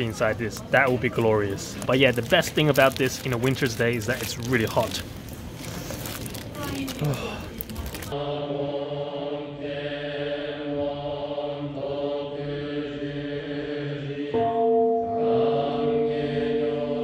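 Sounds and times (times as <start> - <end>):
priests chanting in unison: 8.2 - 17.0.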